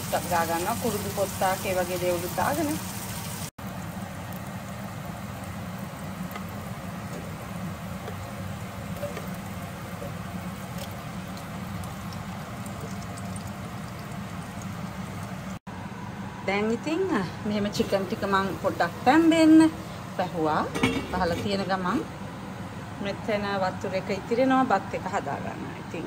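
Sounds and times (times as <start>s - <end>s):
onions sizzling in a pot: 0.0s - 15.6s.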